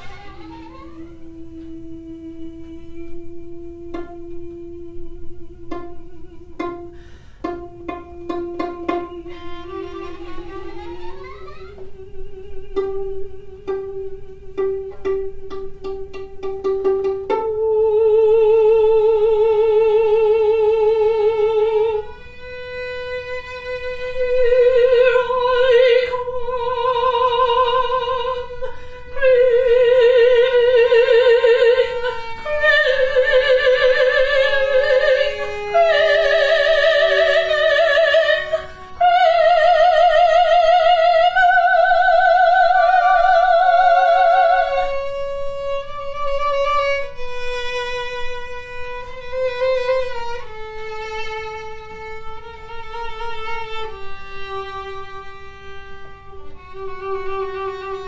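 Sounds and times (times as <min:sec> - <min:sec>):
violin sustained line: 0:00.0 - 0:58.0
soprano singing with vibrato: 0:07.6 - 0:22.2, 0:23.6 - 0:51.4.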